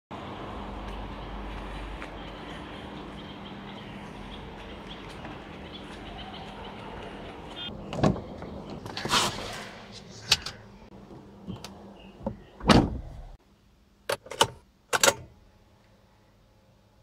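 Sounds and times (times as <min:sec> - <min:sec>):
outdoor background: 0:00.1 - 0:17.0
car door shutting thump: 0:12.2 - 0:13.2.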